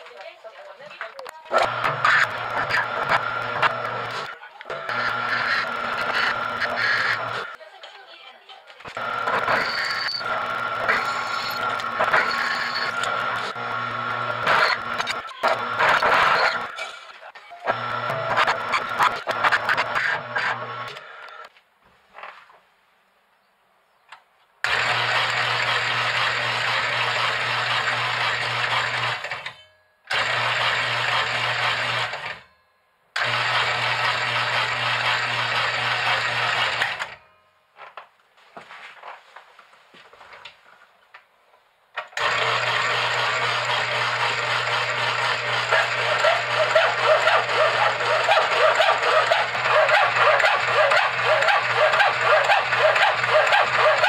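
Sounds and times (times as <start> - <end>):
power hacksaw running: 1.5 - 7.6, 8.9 - 21.5, 24.6 - 32.5, 33.2 - 37.3, 42.2 - 54.0.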